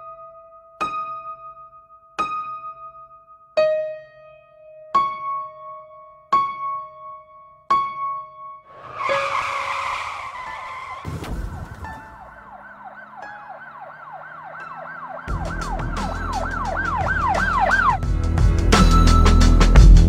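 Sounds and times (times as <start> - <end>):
car tyres screeching: 8.7 - 18.0
emergency siren yelping: 8.7 - 18.0.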